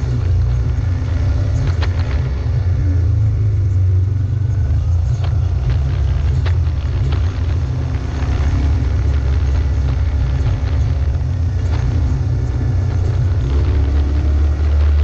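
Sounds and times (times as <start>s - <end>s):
off-road vehicle engine rumbling: 0.0s - 15.0s
knocks and rattles: 4.4s - 15.0s.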